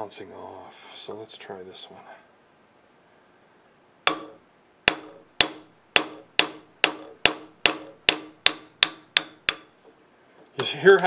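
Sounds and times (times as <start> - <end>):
hammer striking metal punch: 4.1 - 9.7.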